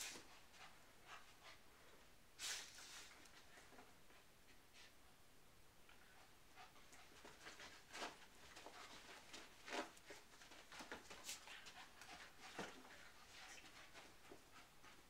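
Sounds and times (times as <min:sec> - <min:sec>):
dogs scuffling: 0:06.9 - 0:14.6.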